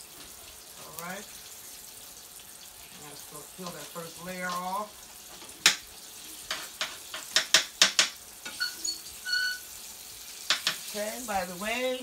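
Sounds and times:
meat sizzling in oil: 0.0s - 12.0s
oil popping and crackling: 0.0s - 12.0s
high squeaky tones: 8.5s - 9.8s.

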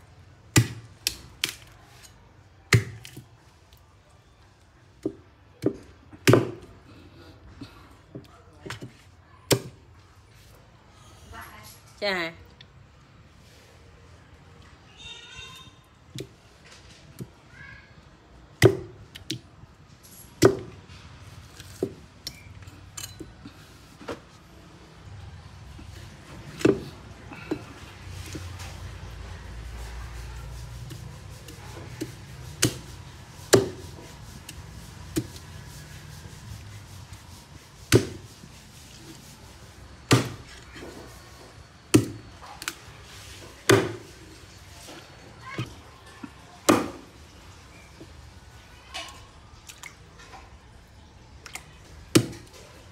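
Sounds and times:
cleaver chopping meat on wood: 0.5s - 1.6s, 5.6s - 6.7s, 18.6s - 19.0s, 32.0s - 32.9s, 33.5s - 33.9s, 37.9s - 38.2s, 40.1s - 40.4s, 43.7s - 44.1s, 52.1s - 52.5s
cleaver chopping meat on board: 33.5s - 33.9s.

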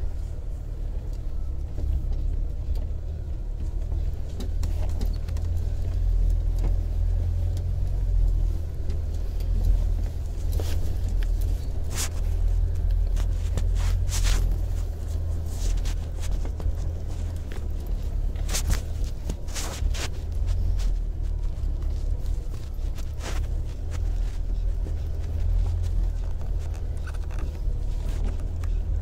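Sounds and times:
car engine and tyres rumbling: 0.0s - 29.0s.

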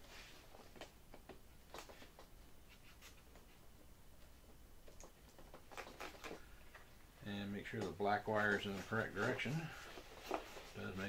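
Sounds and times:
small plastic clicks and rustles: 4.8s - 6.9s.

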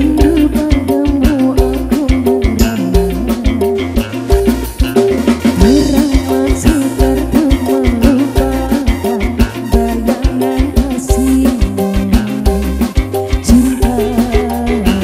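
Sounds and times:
band playing: 0.0s - 15.0s
hand drums and drum kit: 0.0s - 15.0s.

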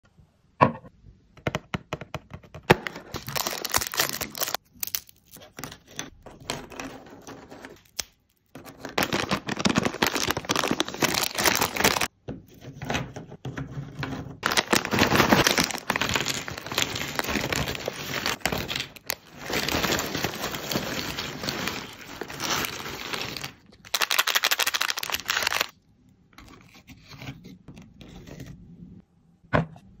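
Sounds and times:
dry snacks crinkling and clattering: 3.1s - 12.1s, 14.4s - 25.7s.

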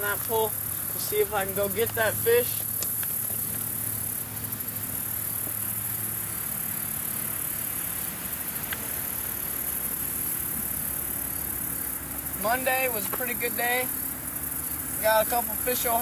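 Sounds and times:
insects trilling: 0.0s - 16.0s
low steady hum: 0.0s - 16.0s.

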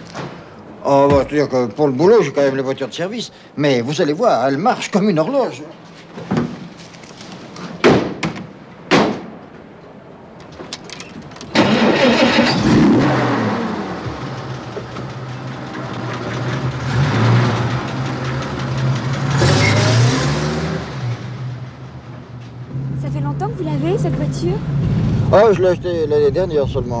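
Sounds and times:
car engine starting and running: 10.8s - 27.0s.

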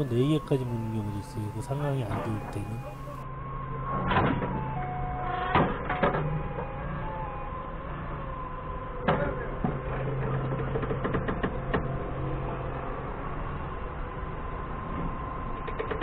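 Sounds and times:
forklift engine idling: 0.0s - 3.2s.

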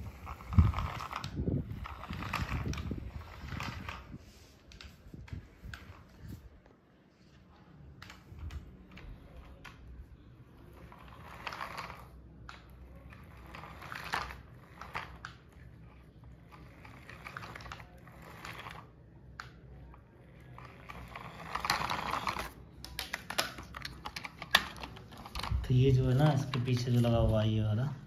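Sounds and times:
toy car motor crackle: 0.0s - 4.2s, 10.8s - 12.2s, 12.8s - 19.0s, 20.3s - 22.6s.

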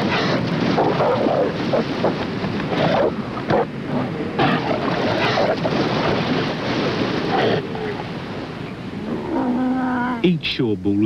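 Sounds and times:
breaking waves: 0.0s - 8.7s
sea lions growling and roaring: 0.0s - 10.2s.

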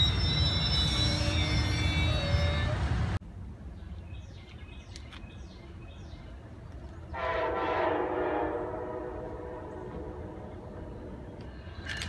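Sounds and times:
distant train horn: 7.1s - 11.3s.

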